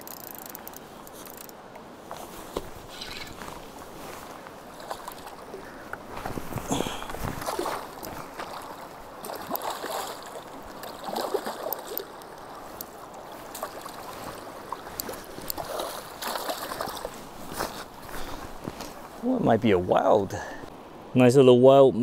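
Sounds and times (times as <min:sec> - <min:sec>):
river rushing: 0:01.0 - 0:20.9
fish splashing in water: 0:07.4 - 0:17.7.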